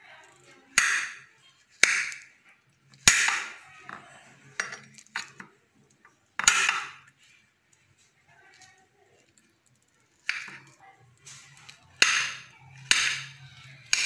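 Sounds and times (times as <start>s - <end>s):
knife striking a plate: 12.0s - 14.0s.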